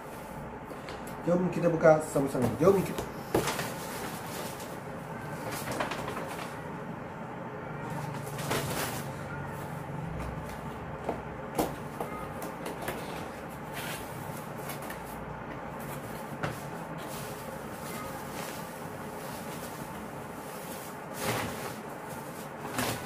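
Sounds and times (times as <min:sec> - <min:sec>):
paper rustling and crumpling: 0:05.4 - 0:06.6, 0:13.6 - 0:23.0.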